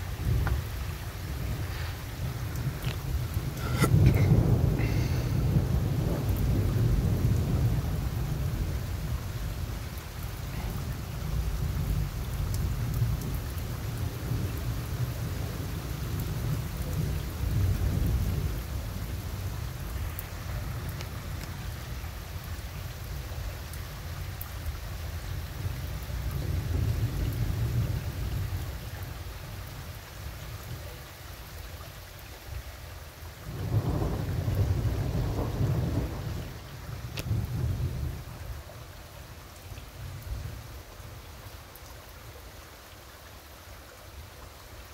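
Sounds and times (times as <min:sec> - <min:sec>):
steady rain: 0:00.0 - 0:44.9
rolling thunder: 0:01.3 - 0:09.7, 0:33.5 - 0:38.4.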